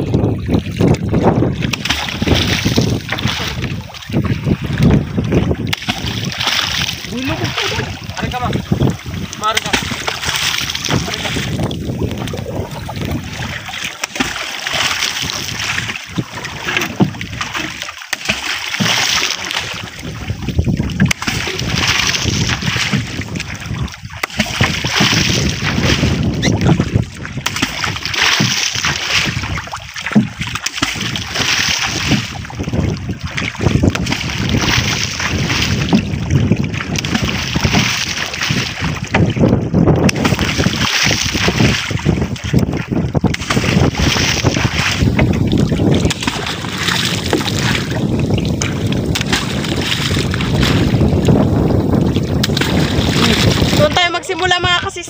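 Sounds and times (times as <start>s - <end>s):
pole splashing in water: 0.0s - 55.0s.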